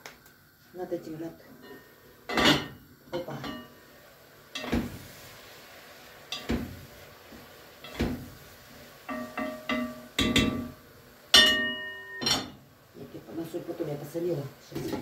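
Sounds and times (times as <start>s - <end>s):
metal kitchenware clinking: 11.4s - 12.6s.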